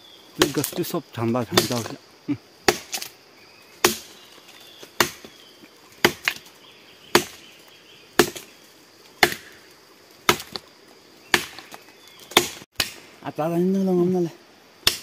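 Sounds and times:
wood being chopped: 0.4s - 0.9s, 1.5s - 2.0s, 2.6s - 3.1s, 3.8s - 5.4s, 6.0s - 6.5s, 7.1s - 7.4s, 8.2s - 10.7s, 11.3s - 13.1s.

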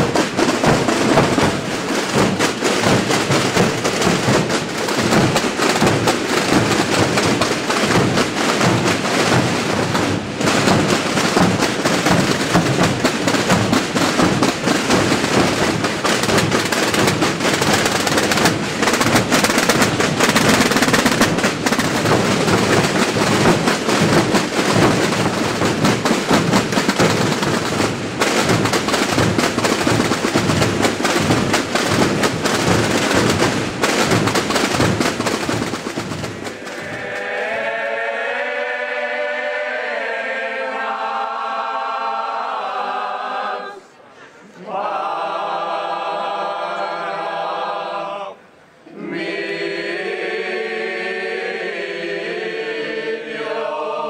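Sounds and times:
massed drums rolling: 0.0s - 38.2s.

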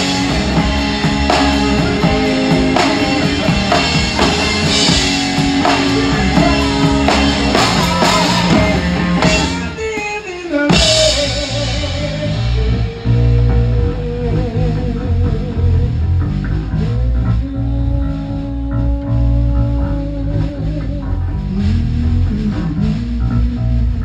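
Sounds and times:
rock band playing live: 0.0s - 24.0s.

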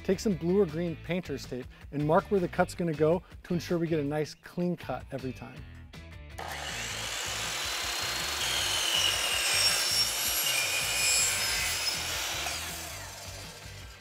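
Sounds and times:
chop saw cutting metal tube: 6.4s - 14.0s.

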